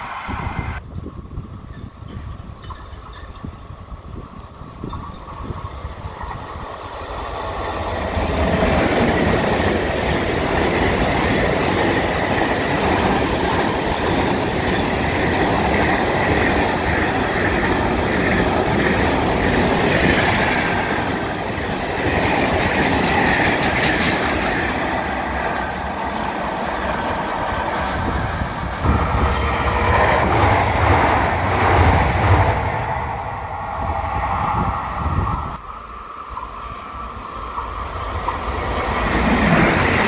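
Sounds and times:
freight train wheels clattering: 4.8s - 32.4s.

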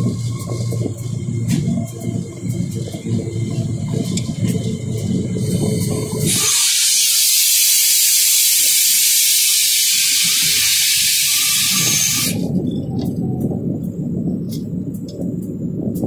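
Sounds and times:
engine rumble: 0.0s - 16.0s
compressed air hissing: 5.2s - 12.5s.

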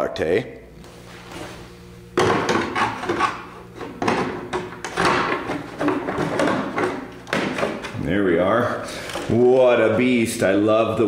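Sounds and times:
plastic shell rubbing and clattering: 2.2s - 8.0s.

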